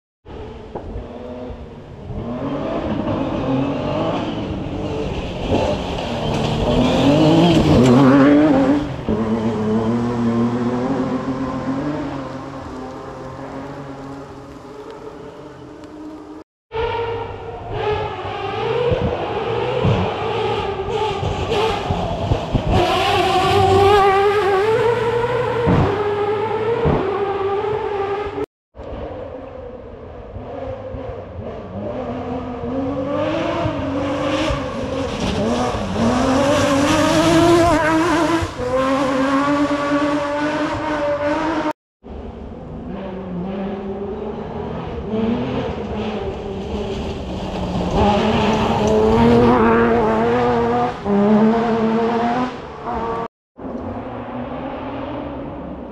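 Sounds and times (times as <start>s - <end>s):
rally car engines revving: 0.3s - 55.9s.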